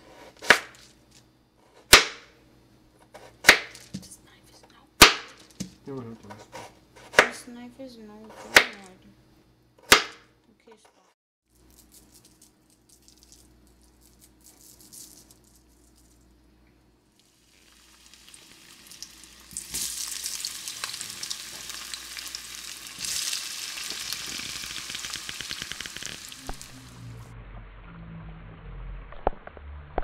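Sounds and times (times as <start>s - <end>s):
potatoes sizzling in grease: 17.2s - 26.8s.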